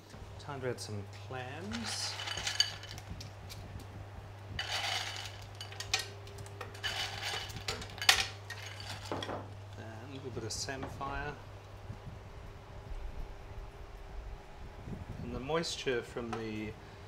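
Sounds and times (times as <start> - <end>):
low steady hum: 0.0 - 17.0
clams clattering on metal tray: 1.6 - 3.1, 4.6 - 9.5.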